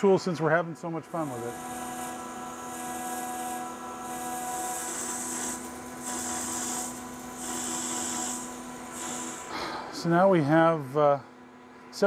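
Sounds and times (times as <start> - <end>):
lathe drive hum: 0.0 - 12.0
cutting tool hiss: 1.1 - 10.3.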